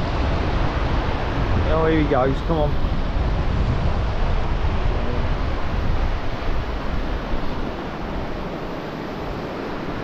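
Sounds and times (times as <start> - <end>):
small waves washing on sand: 0.0 - 10.0
wind noise on microphone: 0.0 - 10.0.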